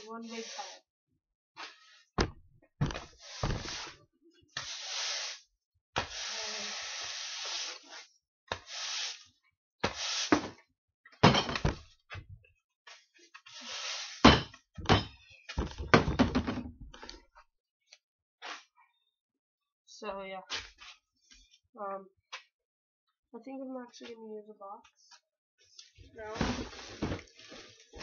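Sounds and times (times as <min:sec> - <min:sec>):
broom sweeping concrete floor: 0:00.0 - 0:00.9, 0:01.6 - 0:02.1, 0:03.0 - 0:10.6, 0:12.9 - 0:14.4, 0:18.4 - 0:18.7, 0:25.7 - 0:28.0.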